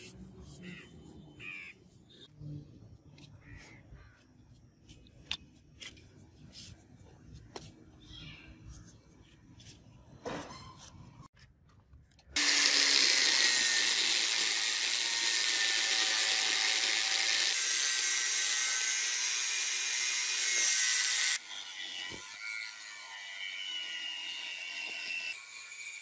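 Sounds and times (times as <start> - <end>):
angle grinder cutting steel: 12.4 - 26.0.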